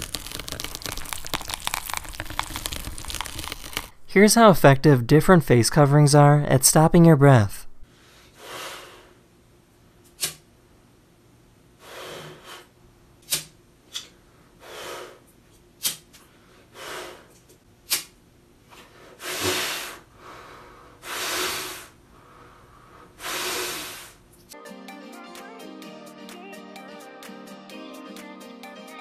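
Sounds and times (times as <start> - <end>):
person breathing out forcefully: 7.9 - 9.2, 11.8 - 12.7, 14.6 - 15.2, 16.3 - 17.4, 18.8 - 24.2.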